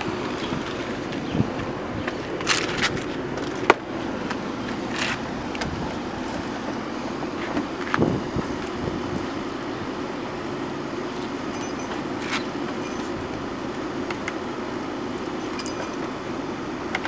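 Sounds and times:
steady hum: 8.1 - 16.8.

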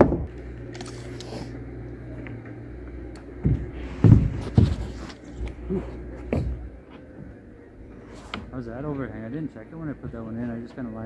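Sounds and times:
steady low hum: 0.0 - 11.0
thumps on plywood roof: 3.4 - 5.2, 6.2 - 6.7.

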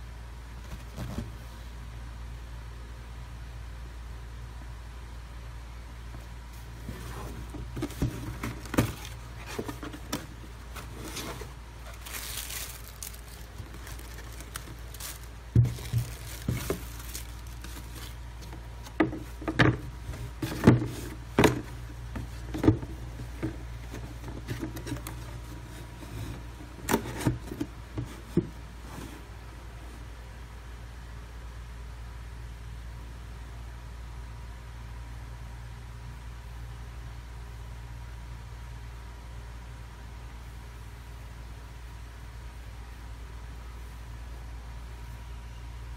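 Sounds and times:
steady low hum: 0.0 - 45.9
cardboard box knocks and rustles: 6.8 - 12.0, 13.8 - 25.4.

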